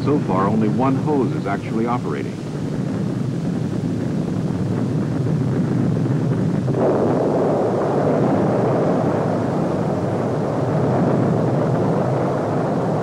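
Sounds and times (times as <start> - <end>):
bomb explosion: 0.0 - 13.0
low rushing fire roar: 0.0 - 13.0.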